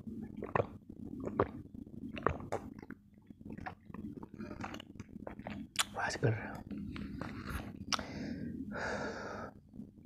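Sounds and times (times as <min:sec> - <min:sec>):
soft mouth sounds: 0:00.1 - 0:08.2
gulping swallows: 0:00.3 - 0:06.0.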